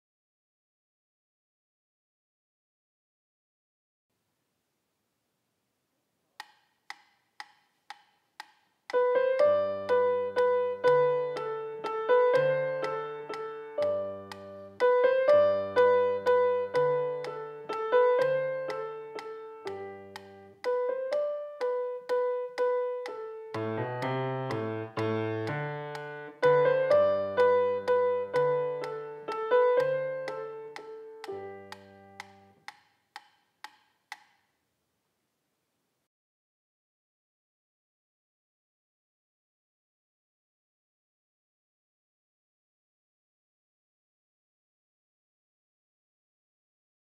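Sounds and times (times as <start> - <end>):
metronome ticking: 6.4 - 34.4
grand piano melody: 8.9 - 32.6.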